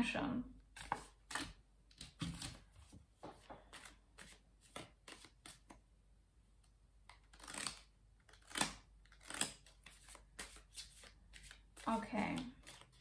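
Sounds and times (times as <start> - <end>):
cards being shuffled: 0.8 - 2.6, 3.2 - 5.8, 7.1 - 13.0
cards snapping: 3.7 - 5.8, 7.1 - 11.6.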